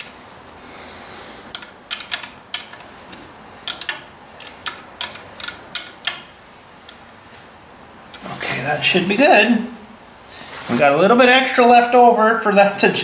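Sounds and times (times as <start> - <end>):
ratchet wrench clicking: 1.5 - 2.9, 3.6 - 6.3.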